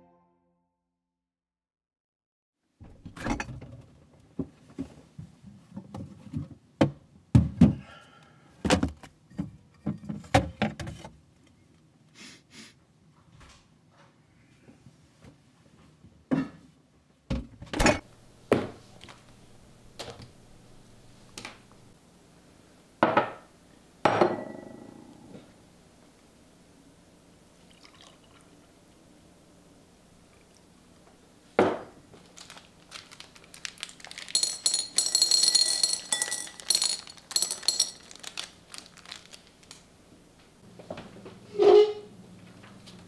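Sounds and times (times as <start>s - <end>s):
metal pitcher handled: 34.3s - 38.3s.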